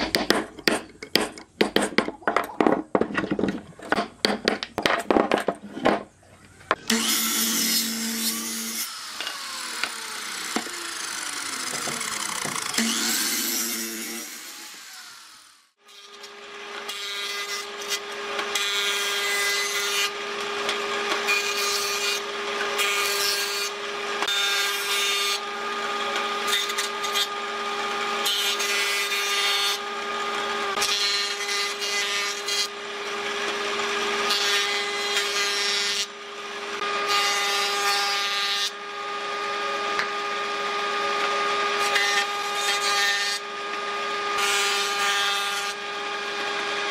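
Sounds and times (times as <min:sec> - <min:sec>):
tool rasping on wood: 0:00.0 - 0:02.1
power tool whine: 0:06.7 - 0:37.7, 0:38.6 - 0:46.9.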